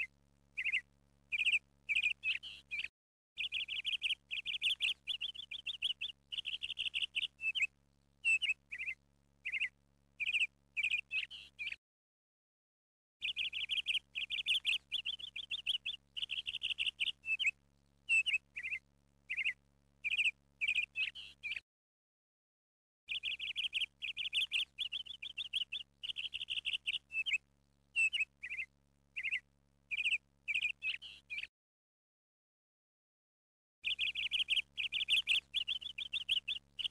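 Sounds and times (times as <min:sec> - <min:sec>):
birds chirping and whistling: 0:00.6 - 0:11.8, 0:13.2 - 0:17.5, 0:18.1 - 0:21.6, 0:23.1 - 0:27.4, 0:28.0 - 0:31.5, 0:33.8 - 0:36.9
faint steady hum: 0:13.2 - 0:21.6, 0:23.1 - 0:31.4.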